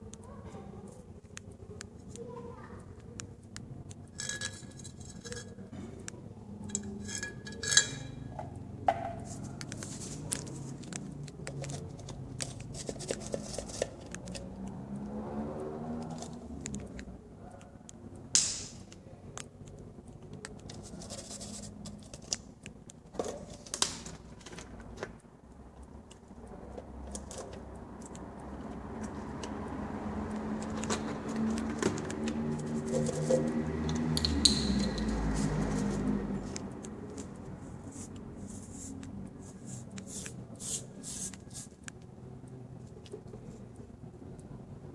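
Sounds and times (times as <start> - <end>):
handling clicks and crinkles: 0.0 - 44.6
sharp scrape: 37.8 - 41.8.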